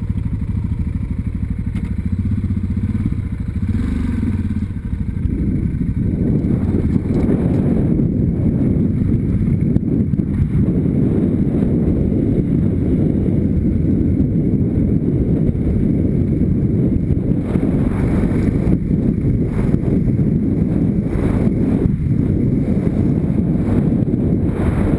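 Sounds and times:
motorcycle on gravel rumble: 0:00.0 - 0:24.9
wind buffeting microphone: 0:00.0 - 0:24.9.

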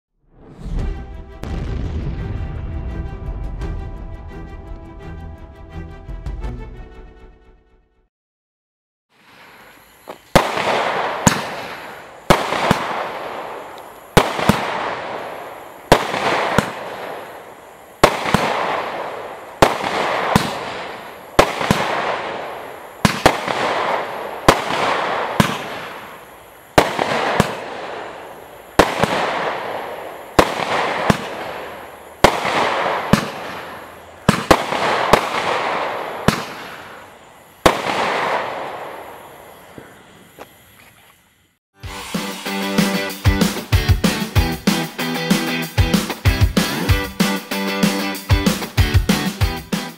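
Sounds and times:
firework shots bang and hiss: 0:00.3 - 0:02.8, 0:09.2 - 0:40.6, 0:46.0 - 0:49.3.

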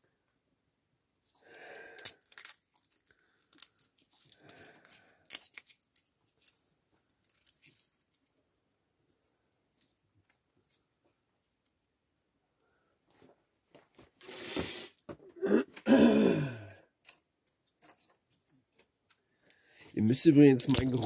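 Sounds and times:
wooden sticks splitting and cracking: 0:01.4 - 0:06.6, 0:20.6 - 0:21.0.

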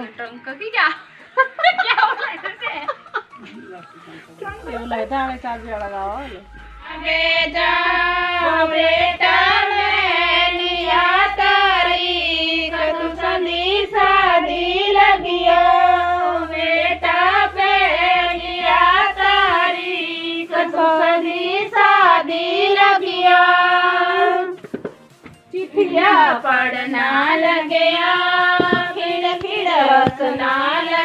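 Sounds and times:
steady low beat: 0:03.4 - 0:24.6, 0:25.9 - 0:31.0
high solo singing voice: 0:06.8 - 0:24.6, 0:25.8 - 0:31.0.

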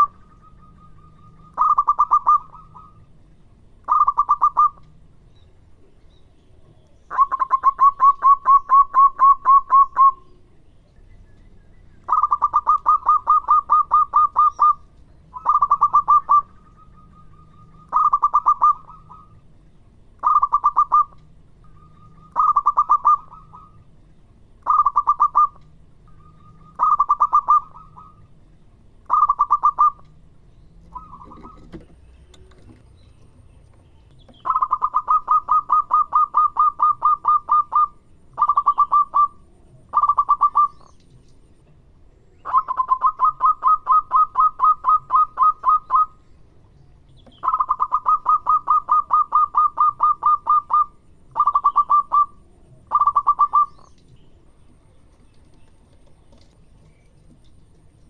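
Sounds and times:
dove cooing in rapid bursts: 0:00.0 - 0:03.1, 0:03.9 - 0:04.8, 0:07.1 - 0:10.2, 0:12.1 - 0:14.8, 0:15.4 - 0:19.4, 0:20.2 - 0:21.2, 0:21.9 - 0:23.8, 0:24.6 - 0:25.6, 0:26.4 - 0:28.2, 0:29.1 - 0:30.1, 0:30.9 - 0:32.8, 0:34.4 - 0:40.8, 0:42.4 - 0:46.1, 0:47.4 - 0:53.7.

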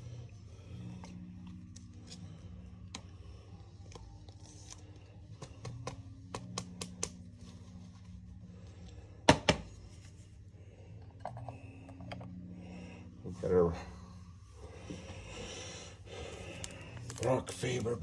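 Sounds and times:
steady low hum: 0:00.0 - 0:18.0
cards and plastic sleeves rustling: 0:01.6 - 0:08.3, 0:16.2 - 0:18.0.

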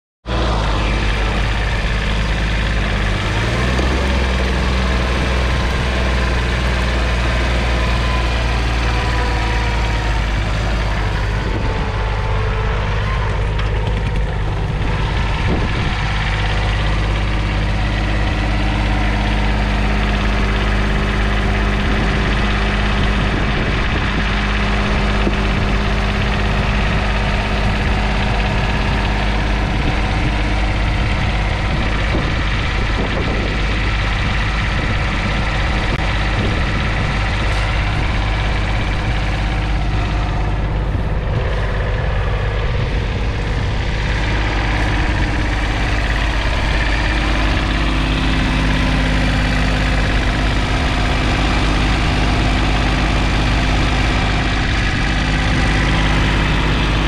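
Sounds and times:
tractor diesel engine running: 0:00.2 - 0:57.0.

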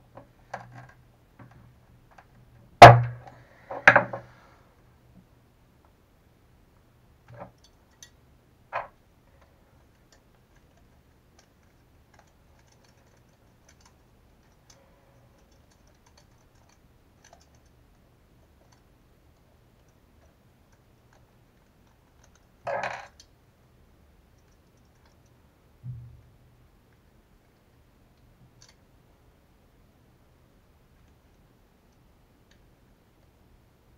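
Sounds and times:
small parts clicking and tapping: 0:07.3 - 0:23.4, 0:24.3 - 0:26.0.

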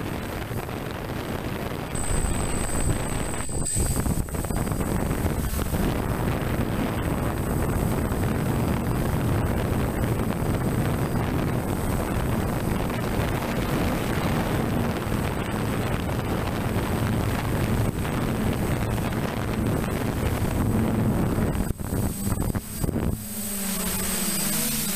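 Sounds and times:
faint high-pitched whine: 0:00.0 - 0:24.9
wind buffeting microphone: 0:00.0 - 0:24.9.

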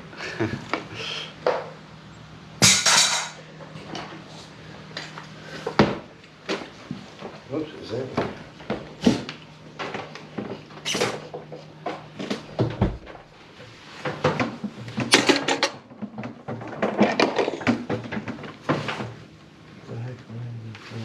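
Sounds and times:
plumbing tools knocking and scraping: 0:05.6 - 0:19.2.

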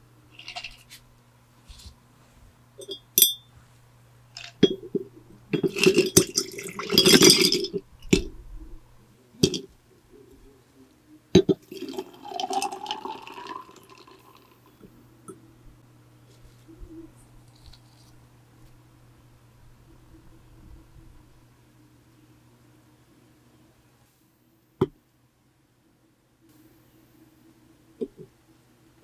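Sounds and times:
electric fan hum: 0:00.0 - 0:29.0
glass jar clinking: 0:02.8 - 0:03.5, 0:04.4 - 0:05.0, 0:05.6 - 0:08.3
milk pouring into jar: 0:05.6 - 0:08.3, 0:11.6 - 0:14.6.

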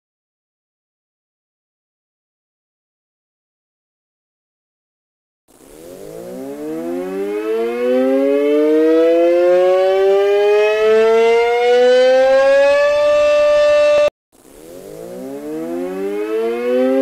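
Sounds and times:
two-tone warning siren winding up: 0:05.8 - 0:17.0.

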